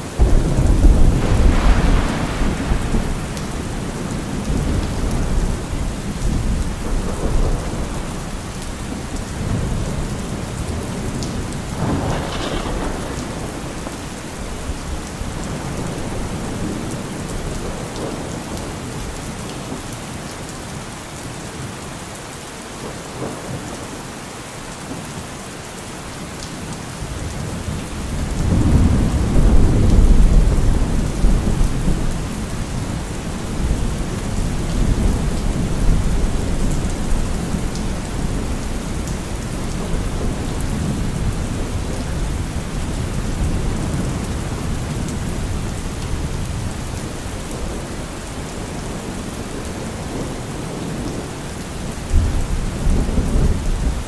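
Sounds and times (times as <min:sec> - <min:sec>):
heavy rain falling: 0:00.0 - 0:54.0
thunder rumbling: 0:00.1 - 0:19.2, 0:27.4 - 0:51.3.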